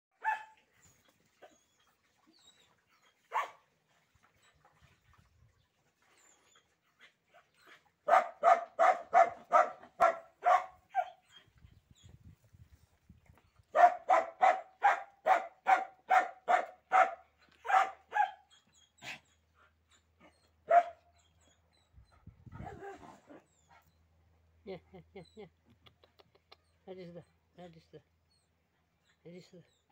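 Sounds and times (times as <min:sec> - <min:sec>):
dog barking: 0:00.2 - 0:00.6, 0:03.3 - 0:03.6, 0:08.1 - 0:11.2, 0:13.8 - 0:18.4, 0:20.7 - 0:21.0.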